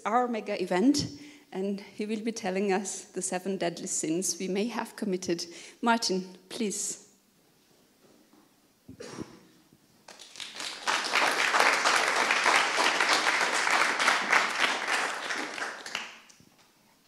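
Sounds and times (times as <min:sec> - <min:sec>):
audience applauding: 0:10.1 - 0:16.4.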